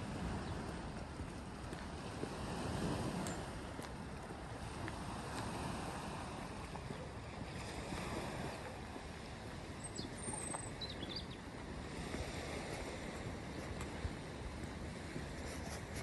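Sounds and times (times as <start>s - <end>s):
wind: 0.0s - 16.0s
small waves on pebble shore: 1.6s - 3.8s, 4.5s - 9.8s.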